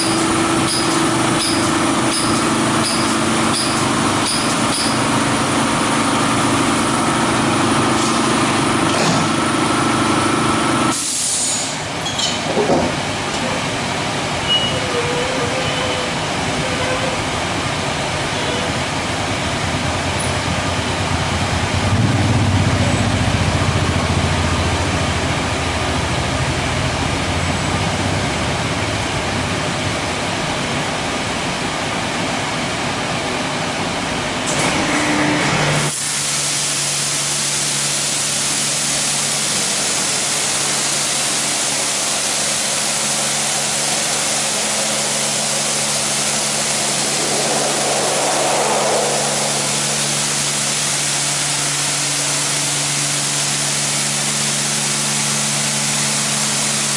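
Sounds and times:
water jets spraying car: 0:35.8 - 0:56.9
even hum: 0:44.2 - 0:52.4
low machinery rumble: 0:44.6 - 0:51.9.

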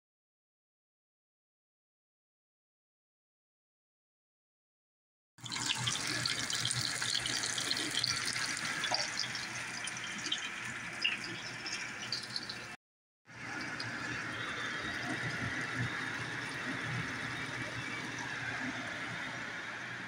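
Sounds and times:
vegetables frying in hot oil: 0:05.4 - 0:12.8.

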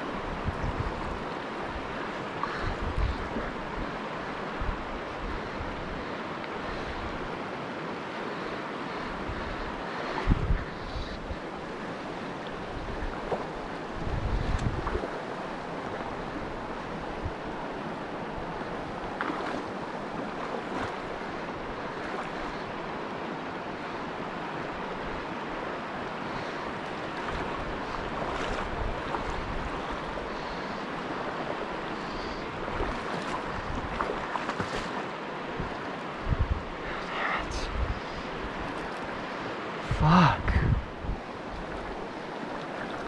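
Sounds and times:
river rushing over cobbles: 0:11.1 - 0:43.0.

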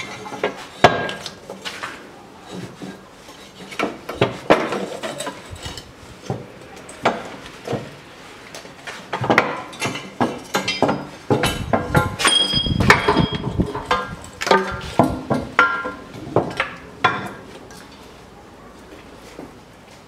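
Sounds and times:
metal exhaust pipes clanking: 0:00.0 - 0:01.9, 0:08.6 - 0:18.1.

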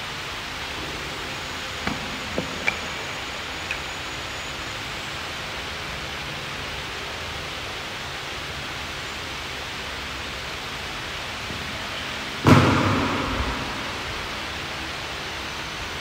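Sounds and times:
steady hiss: 0:00.0 - 0:16.0
weight plates clinking: 0:01.8 - 0:04.1.

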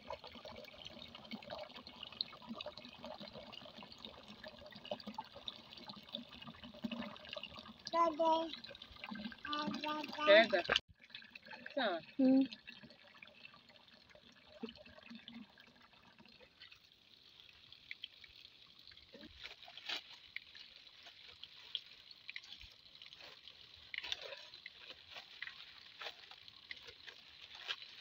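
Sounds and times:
water dripping and trickling: 0:00.0 - 0:28.0.

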